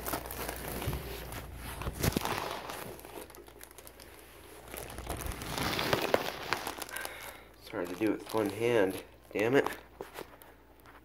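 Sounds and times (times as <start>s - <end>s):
packaging crinkling and rustling: 0.0s - 11.0s.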